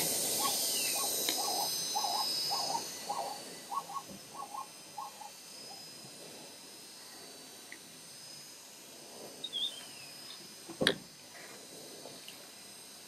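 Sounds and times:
steady hiss: 0:00.0 - 0:13.0
short hooting animal calls: 0:00.4 - 0:05.8.

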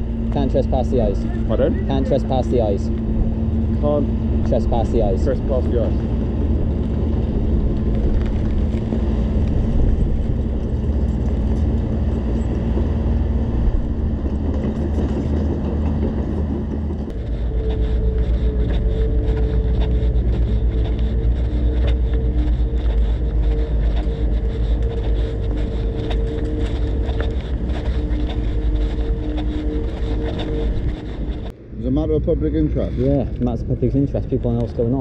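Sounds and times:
engine droning: 0:00.0 - 0:35.0
higher hum: 0:00.0 - 0:35.0.

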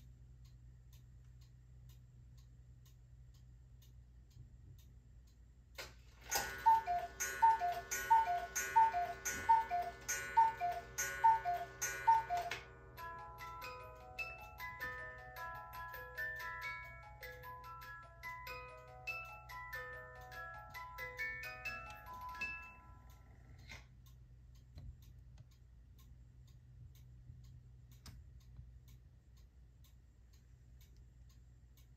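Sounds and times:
clock click: 0:00.4 - 0:13.1, 0:21.9 - 0:31.9
cuckoo clock calls: 0:06.1 - 0:23.8.

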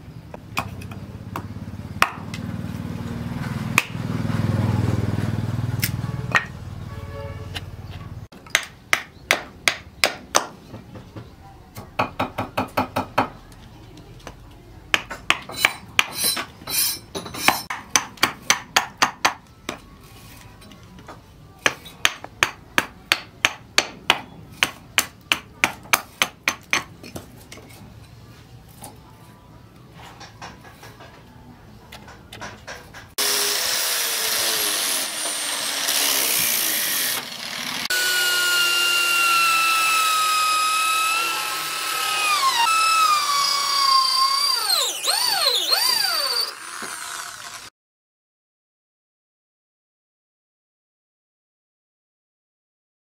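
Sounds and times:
hatchet chopping wood: 0:00.5 - 0:02.4, 0:03.7 - 0:04.1, 0:08.4 - 0:10.6, 0:14.9 - 0:16.2, 0:17.5 - 0:19.8, 0:21.6 - 0:27.3.

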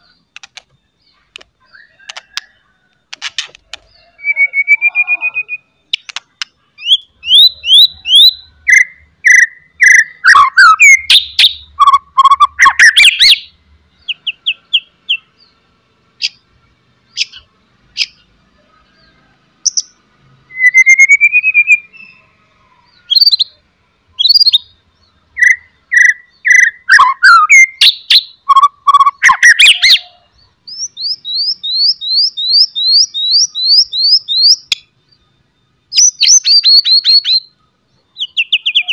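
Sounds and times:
bird whistling song: 0:03.8 - 0:06.2, 0:06.8 - 0:15.2, 0:17.1 - 0:18.3, 0:19.6 - 0:22.3, 0:22.9 - 0:23.6, 0:24.2 - 0:38.9.

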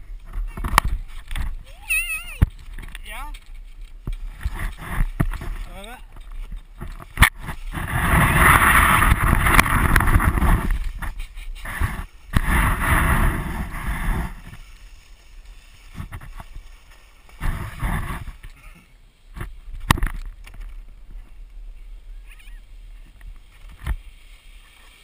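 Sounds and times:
wind on microphone: 0:00.0 - 0:18.7
sled scraping over snow: 0:00.0 - 0:25.0.

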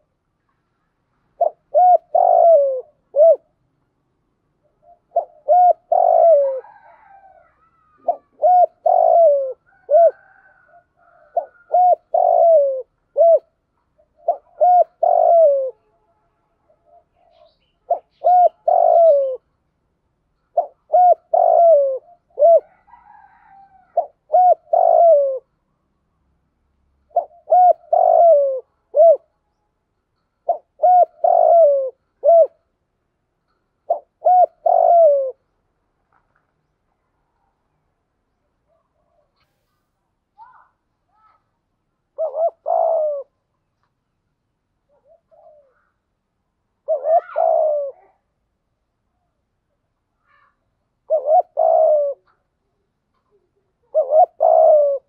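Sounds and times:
dove cooing: 0:01.3 - 0:03.6, 0:04.6 - 0:16.0, 0:16.7 - 0:19.5, 0:20.5 - 0:25.5, 0:27.1 - 0:29.3, 0:30.4 - 0:32.8, 0:33.8 - 0:35.5, 0:42.1 - 0:43.5, 0:44.8 - 0:46.0, 0:46.8 - 0:48.3, 0:50.3 - 0:55.0.

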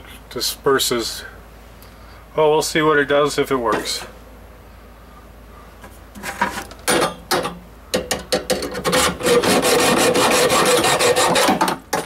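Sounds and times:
saw cutting metal pipe: 0:08.7 - 0:12.0.

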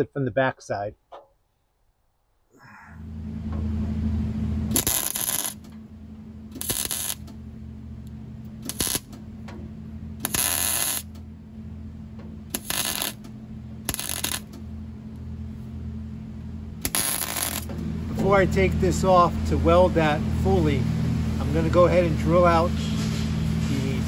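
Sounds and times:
welder humming: 0:02.6 - 0:24.0
welding arc bursts: 0:04.7 - 0:05.7, 0:06.5 - 0:07.4, 0:08.6 - 0:09.2, 0:10.2 - 0:11.2, 0:12.5 - 0:14.6, 0:16.8 - 0:17.7.

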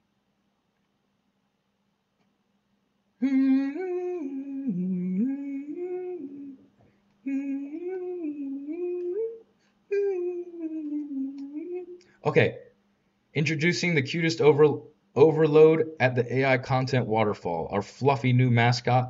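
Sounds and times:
man humming a tune: 0:03.2 - 0:12.1.

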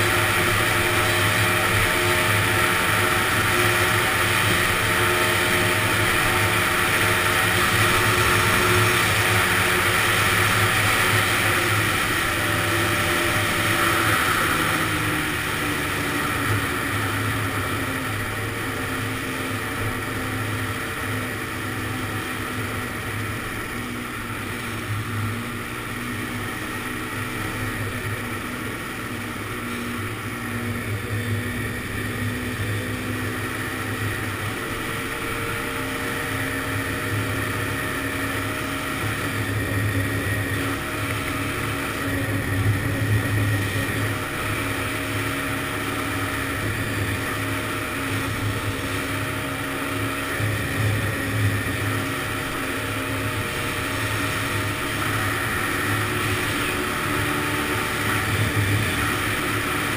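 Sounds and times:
two-stroke engine running: 0:00.0 - 0:59.9.

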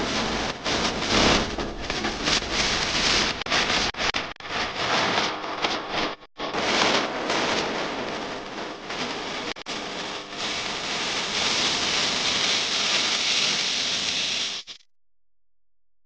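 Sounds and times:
steady rushing hiss: 0:09.8 - 0:14.8.

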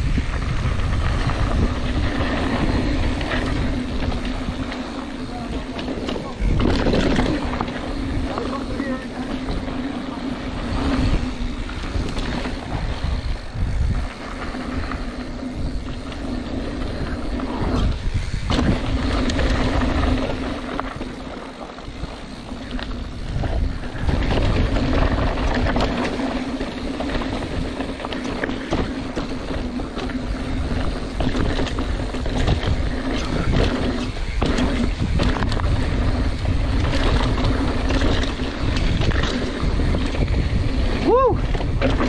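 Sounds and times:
bike rattling over bumps: 0:00.0 - 0:42.0
tyres on loose dirt: 0:00.0 - 0:42.0
wind rushing over microphone: 0:00.0 - 0:42.0.

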